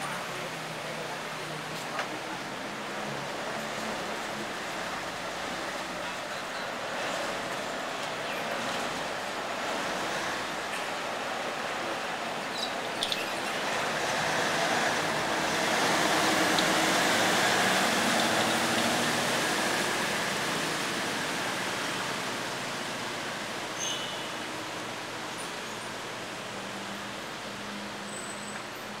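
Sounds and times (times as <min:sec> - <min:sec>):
boat engine: 0:02.5 - 0:23.5.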